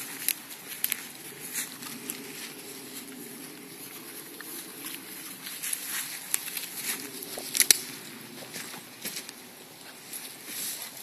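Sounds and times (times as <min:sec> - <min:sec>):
small clicks and crackles: 0:00.0 - 0:02.5, 0:03.9 - 0:09.4
footsteps rustling through grass: 0:00.0 - 0:11.0.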